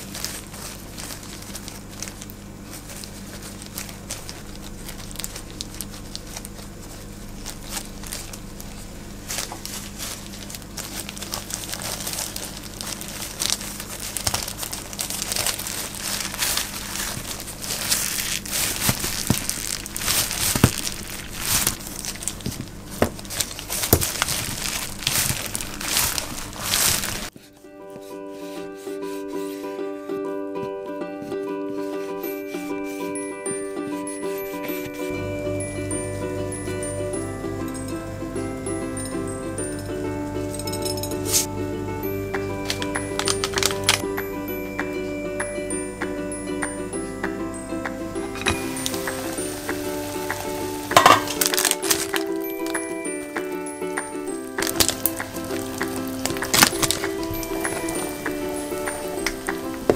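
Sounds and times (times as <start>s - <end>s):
steady low hum: 0.0s - 27.3s, 34.9s - 51.4s
plastic gloves crinkling: 0.0s - 29.8s, 32.1s - 59.9s.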